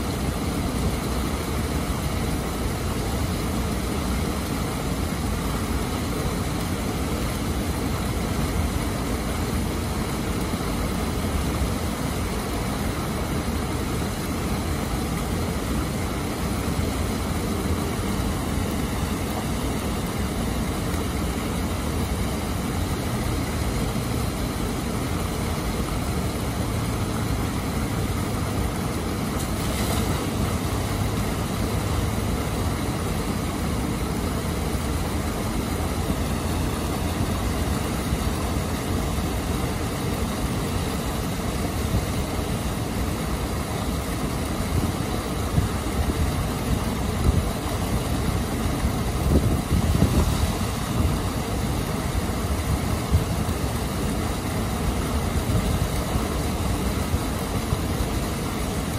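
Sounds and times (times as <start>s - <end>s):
water rushing over weir: 0.0s - 58.9s.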